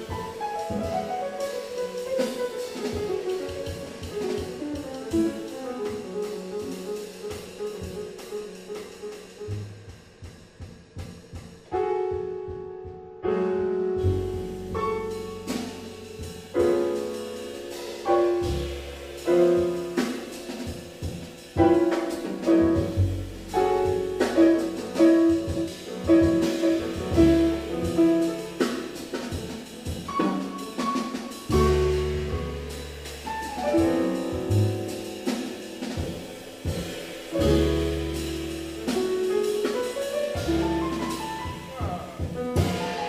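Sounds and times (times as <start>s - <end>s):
drum kit: 0.0s - 43.0s
piano: 0.0s - 43.0s
upright bass: 13.9s - 29.3s, 31.5s - 39.3s, 40.3s - 43.0s.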